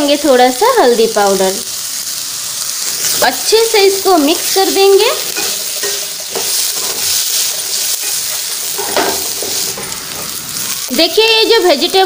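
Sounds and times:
vegetables sizzling in hot oil: 0:00.0 - 0:12.0
spatula scraping a pan: 0:05.2 - 0:10.4.

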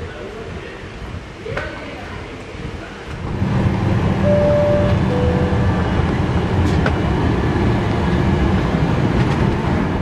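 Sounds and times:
two-tone high-low chime: 0:04.3 - 0:05.9.

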